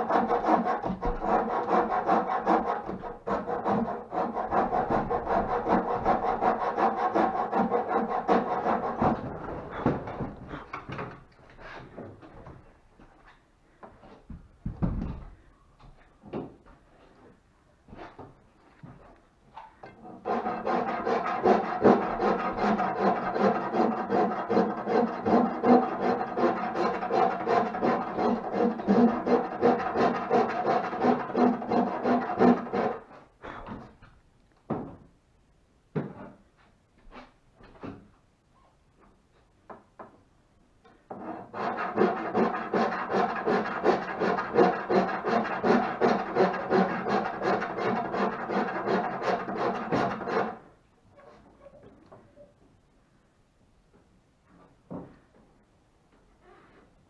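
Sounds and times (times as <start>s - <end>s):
file rasping on wood: 0.0s - 9.3s, 20.0s - 33.2s, 41.1s - 50.6s
wooden knocks and bumps: 0.8s - 1.3s, 9.0s - 11.3s, 13.8s - 16.8s, 33.6s - 35.1s, 35.9s - 36.4s.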